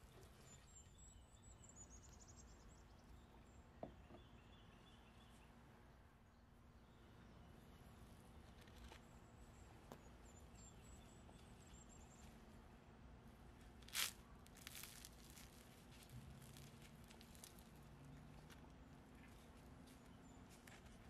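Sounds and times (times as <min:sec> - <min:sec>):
fried food crackling crunch: 0:13.8 - 0:18.6.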